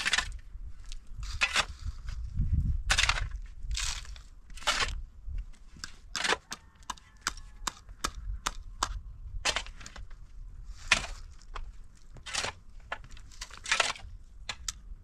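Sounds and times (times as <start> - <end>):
tools scraping soil: 0.0 - 0.4, 1.2 - 2.2, 2.9 - 5.0, 5.6 - 7.9, 9.4 - 14.8
pickaxe striking hard dirt: 2.9 - 5.0, 6.2 - 10.1, 10.9 - 11.4, 12.2 - 14.8.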